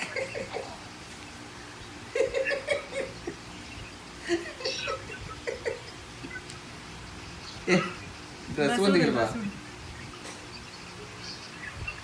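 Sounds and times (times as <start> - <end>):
person laughing: 4.2 - 5.9.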